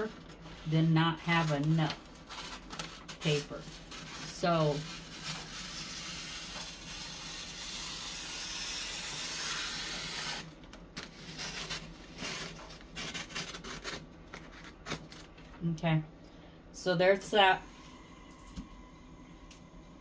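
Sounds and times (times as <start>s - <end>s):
scissors cutting paper: 4.5s - 10.4s, 11.3s - 15.3s.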